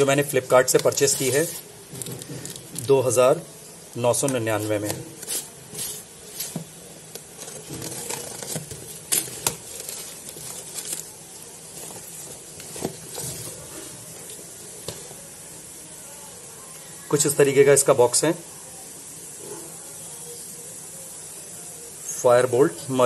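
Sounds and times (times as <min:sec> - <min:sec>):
packaging crinkling and rustling: 0:00.0 - 0:02.9, 0:04.1 - 0:15.1.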